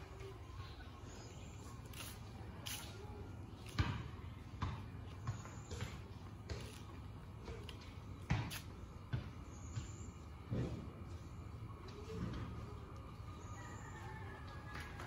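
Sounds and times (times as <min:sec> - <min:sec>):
footsteps on concrete: 0:01.1 - 0:11.2.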